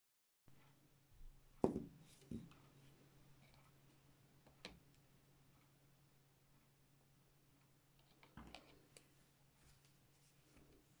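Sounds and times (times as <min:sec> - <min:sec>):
porcelain dish knocking on table: 0:01.6 - 0:02.5.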